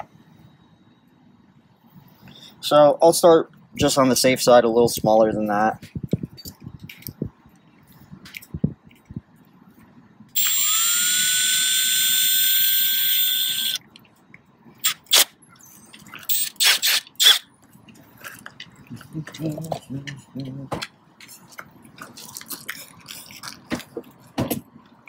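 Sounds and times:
cordless drill whine: 10.4s - 13.8s.

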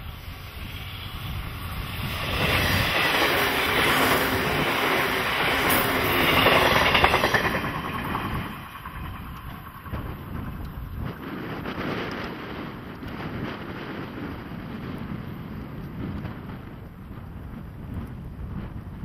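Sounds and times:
wheels clattering over rail joints: 0.0s - 15.1s
train passing rumble: 0.0s - 19.0s.

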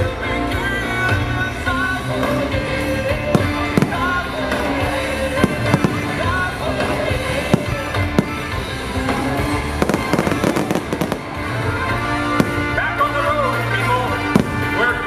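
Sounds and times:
loud music: 0.0s - 15.0s
fireworks crackling: 1.8s - 15.0s
fireworks bangs: 3.2s - 13.0s, 14.2s - 15.0s.

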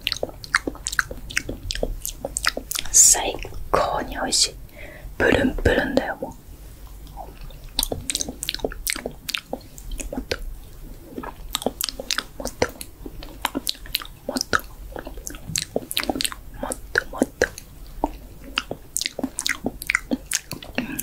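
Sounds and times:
wet mouth smacks and clicks: 0.0s - 3.6s, 6.9s - 21.0s.

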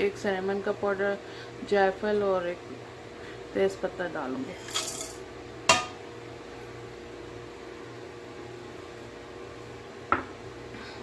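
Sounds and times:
appliance hum with fan noise: 0.0s - 11.0s.

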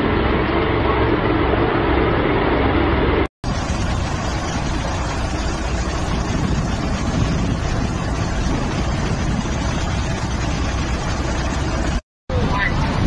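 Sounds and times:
road traffic: 0.0s - 13.0s
wind on microphone: 3.4s - 13.0s.

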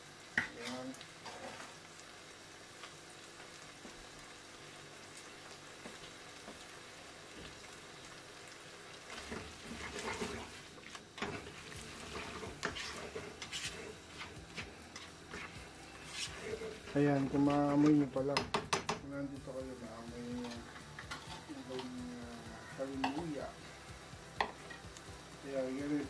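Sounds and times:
noodles sizzling in a wok: 0.0s - 26.0s
spatula scraping a pan: 9.2s - 17.0s, 20.4s - 21.5s.

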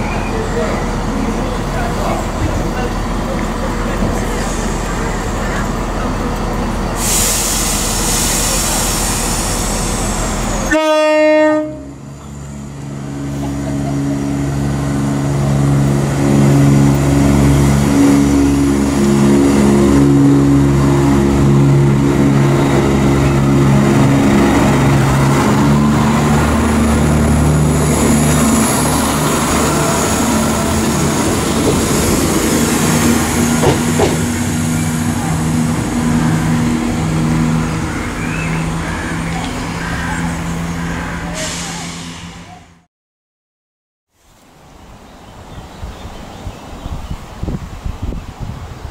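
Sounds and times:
diesel engine drone: 11.6s - 42.8s
wheel and rail noise: 12.0s - 42.8s.

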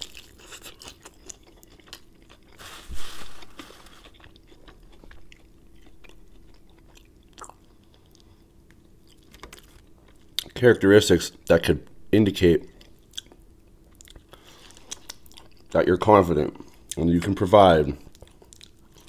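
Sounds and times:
chewing crispy fried chicken: 0.0s - 2.8s, 3.4s - 10.6s, 12.7s - 15.8s, 18.0s - 19.0s.

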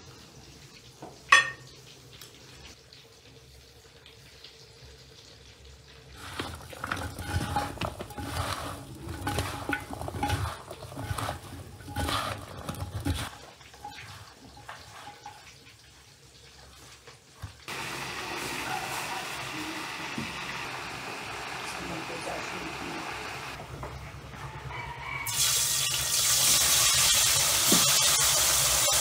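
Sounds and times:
water: 0.0s - 19.3s
dishes and pans clattering: 1.3s - 1.7s, 6.2s - 15.6s.

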